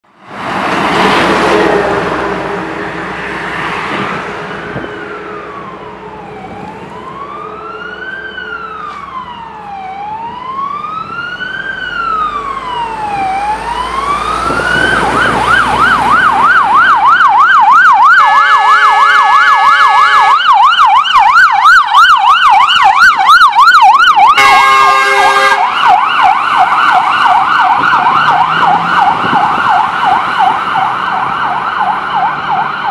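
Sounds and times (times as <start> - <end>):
passing car: 0.1 - 18.8, 22.6 - 32.9
fire engine siren: 0.3 - 32.9
truck horn blasts: 18.2 - 20.4, 24.4 - 25.7.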